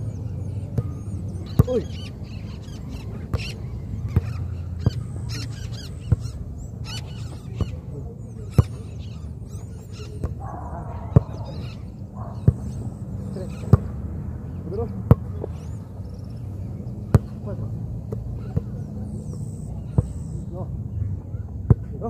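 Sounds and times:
birds chirping: 0.0 - 22.0
football kicked dull thuds: 1.5 - 1.8, 6.0 - 6.4, 11.1 - 11.5, 12.4 - 12.8, 17.1 - 18.7.

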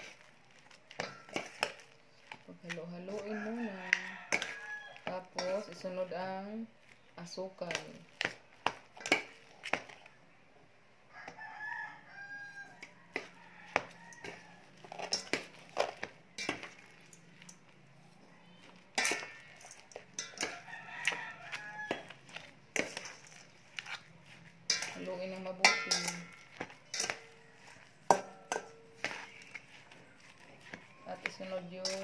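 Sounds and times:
metal spoon scraping steel bowl: 0.9 - 6.1, 8.9 - 10.0, 12.5 - 32.0
rooster crowing: 3.2 - 5.1, 11.1 - 14.7, 20.3 - 22.2.

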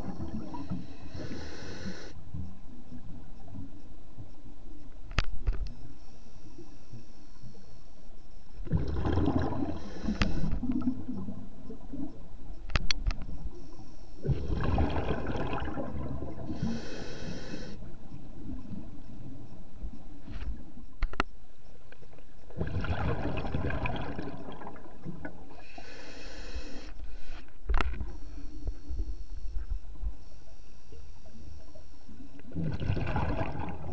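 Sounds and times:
underwater exhaled air bubbling: 0.0 - 2.1, 8.6 - 12.1, 14.2 - 18.8, 22.5 - 27.3, 31.2 - 33.9
regulator hissing inhalations: 0.8 - 2.2, 9.7 - 10.6, 16.5 - 17.8, 25.5 - 27.5.

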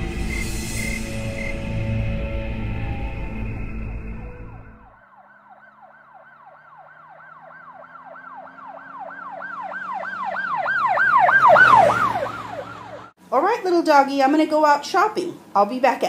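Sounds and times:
eerie music: 0.0 - 6.3
siren yelping: 1.0 - 13.2.

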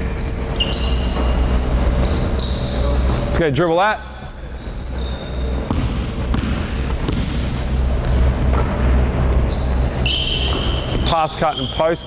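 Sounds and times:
sneaker squeaks: 0.0 - 12.0
basketball dribbling on hardwood: 5.7 - 7.4.

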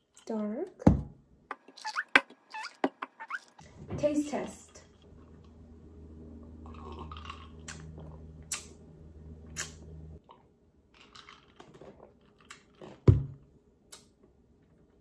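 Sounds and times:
low steady hum: 3.6 - 15.0
person sipping and swallowing: 6.7 - 8.6.

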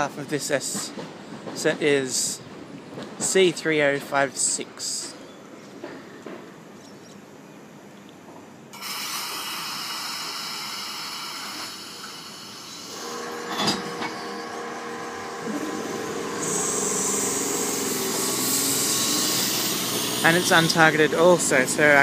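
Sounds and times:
train machinery hum: 0.0 - 22.0
hiss of air from train: 8.7 - 22.0.

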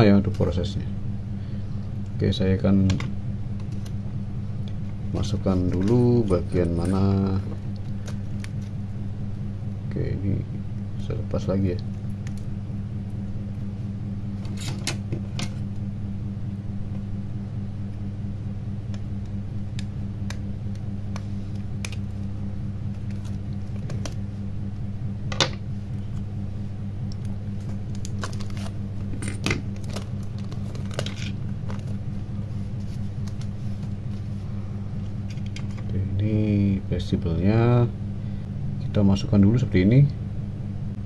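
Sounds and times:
low electrical hum: 0.0 - 41.0.

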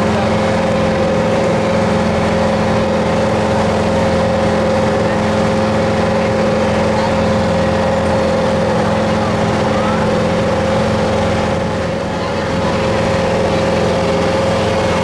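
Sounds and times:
motorboat engine humming: 0.0 - 15.0.

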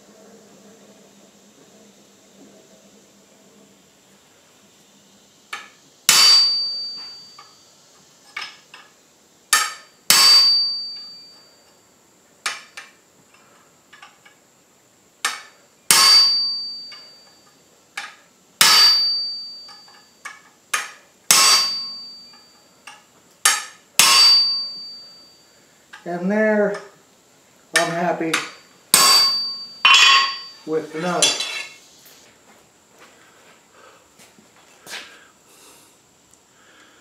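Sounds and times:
hammer striking steel on anvil: 5.5 - 7.5, 9.5 - 11.3, 15.2 - 17.2, 18.0 - 25.2, 27.8 - 31.8.

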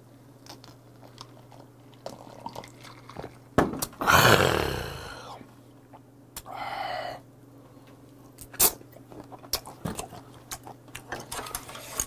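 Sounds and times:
man gulping drink: 2.2 - 6.0
raspy exhaled exclamation: 4.0 - 5.4.

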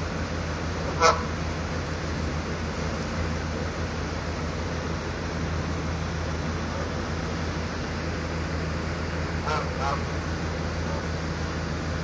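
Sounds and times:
low mechanical hum: 0.0 - 12.0
goose honking: 0.9 - 1.4, 9.4 - 10.1.

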